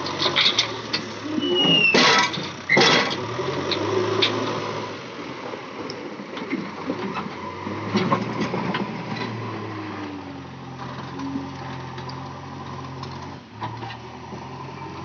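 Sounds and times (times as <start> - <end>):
diesel engine running: 0.0 - 15.0
loud bucket clanks: 1.6 - 3.2.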